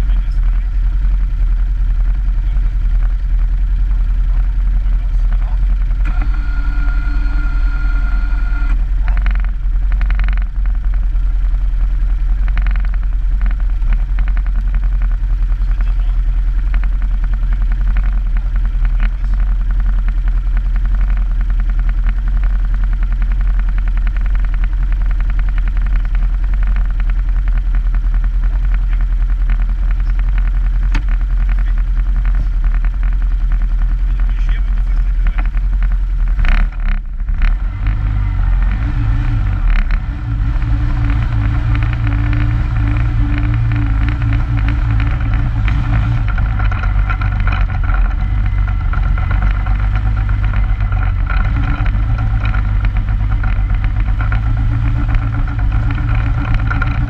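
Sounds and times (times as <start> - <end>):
quad bike engine idling: 0.0 - 57.0.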